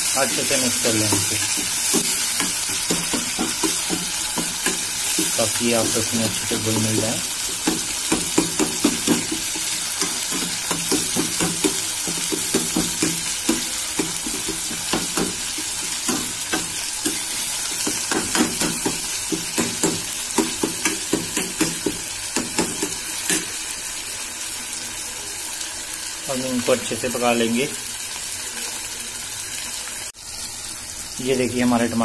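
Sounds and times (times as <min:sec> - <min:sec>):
metal spoon scraping wok: 0:00.0 - 0:06.8, 0:07.4 - 0:21.8
onions sizzling in oil: 0:00.0 - 0:32.0.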